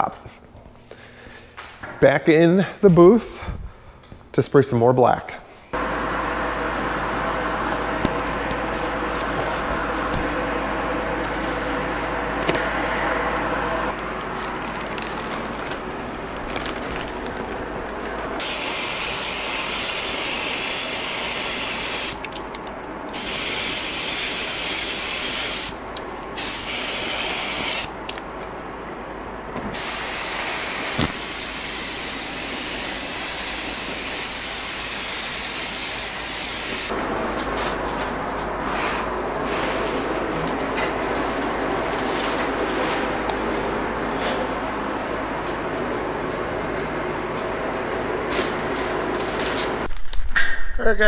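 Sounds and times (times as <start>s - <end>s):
paint spray gun hissing: 18.4s - 22.2s, 23.1s - 25.8s, 26.4s - 27.9s, 29.7s - 36.9s.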